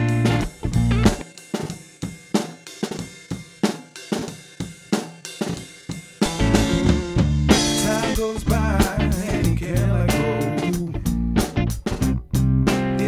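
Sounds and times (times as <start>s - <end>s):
backing music track: 0.0s - 1.3s, 6.2s - 13.0s
drum kit groove: 0.0s - 13.0s.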